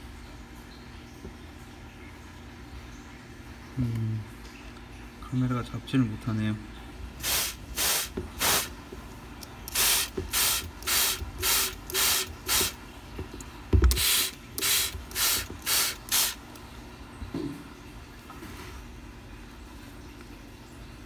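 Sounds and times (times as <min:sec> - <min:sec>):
spray bottle misting: 0:07.2 - 0:08.8, 0:09.7 - 0:12.8, 0:13.8 - 0:16.4.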